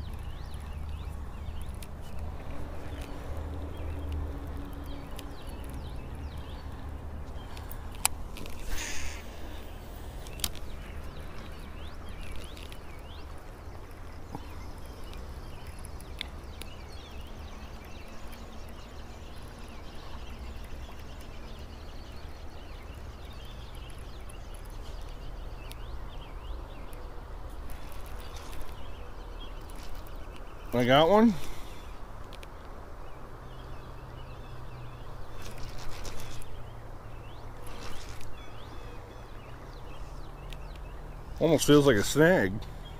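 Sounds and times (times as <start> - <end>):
birds chirping: 0.0 - 42.9
fishing reel line hiss: 7.9 - 10.3.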